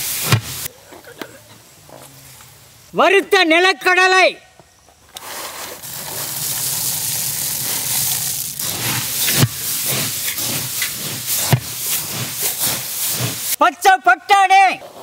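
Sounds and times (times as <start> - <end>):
ladle scraping: 5.2 - 13.6
peanuts pouring from metal bowl: 5.2 - 13.6.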